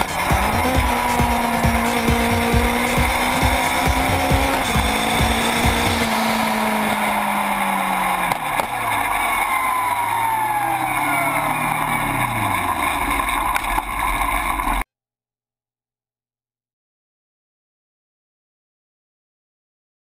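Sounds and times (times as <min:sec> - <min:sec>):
motorcycle engine and exhaust: 0:00.0 - 0:14.8
road and wind noise: 0:00.0 - 0:14.8.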